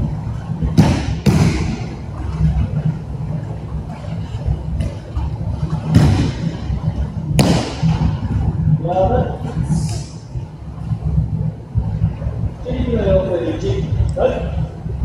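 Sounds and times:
low hum: 0.0s - 15.0s
bodies thudding onto mats: 0.7s - 2.0s, 5.8s - 6.6s, 7.4s - 8.2s.

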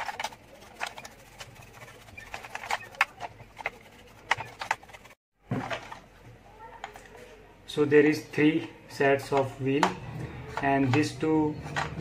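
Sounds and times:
brush sweeping plastic toy: 0.0s - 5.2s.

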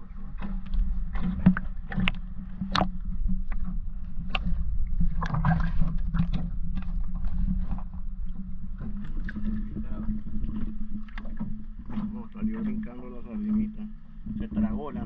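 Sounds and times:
muffled water sloshing: 0.0s - 15.0s
steady low hum: 0.0s - 15.0s.

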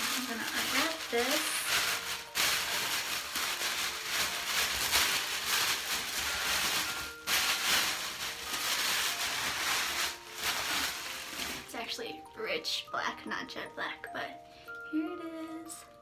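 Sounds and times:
packaging wrap crinkling: 0.0s - 12.2s.

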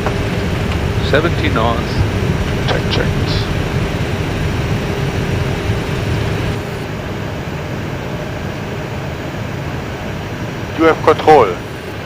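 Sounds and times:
level hum: 0.0s - 12.0s
rumble of engines and wheels: 0.0s - 12.0s.

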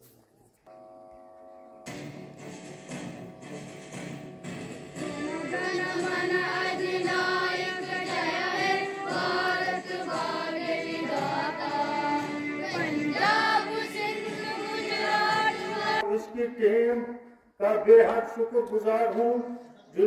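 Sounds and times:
choir singing: 5.0s - 16.1s.

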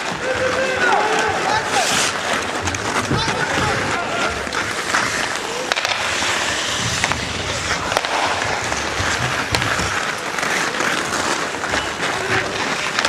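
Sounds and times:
voices calling: 0.0s - 9.1s
clicks of sticks and puck: 0.0s - 13.0s
skate blades scraping ice: 0.0s - 13.0s.

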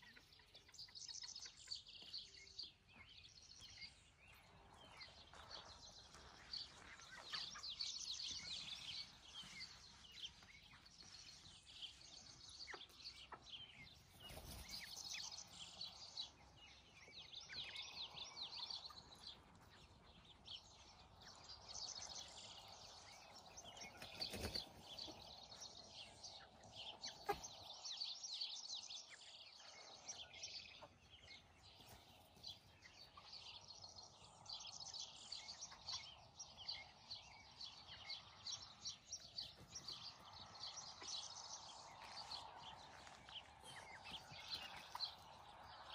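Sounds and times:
chickens clucking: 0.0s - 3.1s, 4.5s - 11.2s, 11.9s - 16.6s, 22.5s - 28.0s, 30.0s - 33.4s
birds chirping: 0.0s - 45.9s.

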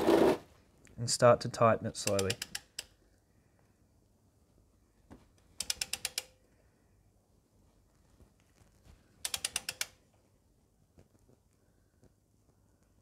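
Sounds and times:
socket wrench ratchet clicking: 2.0s - 3.0s, 5.6s - 6.4s, 9.2s - 10.0s.

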